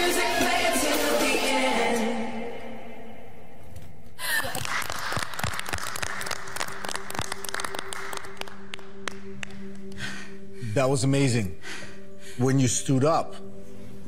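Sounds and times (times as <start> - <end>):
applause: 4.4 - 9.6.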